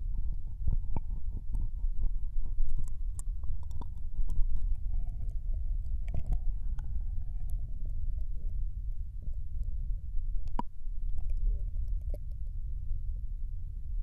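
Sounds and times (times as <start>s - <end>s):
low rumble of microphone contact: 0.0s - 14.0s
wet mouth clicks and smacks: 2.6s - 4.8s, 5.8s - 6.9s.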